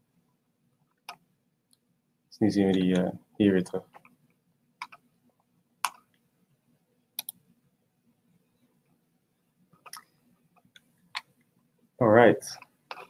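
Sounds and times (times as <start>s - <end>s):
computer mouse clicking: 0.9s - 1.8s, 3.8s - 5.1s, 5.8s - 6.2s, 7.2s - 7.4s, 9.8s - 11.5s, 12.6s - 13.0s.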